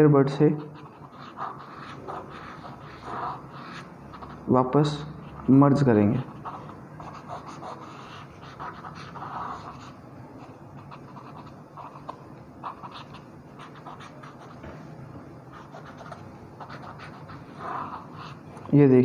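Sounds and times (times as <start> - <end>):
cotton bud rubbing on paper: 0.6 - 14.7, 15.5 - 18.5.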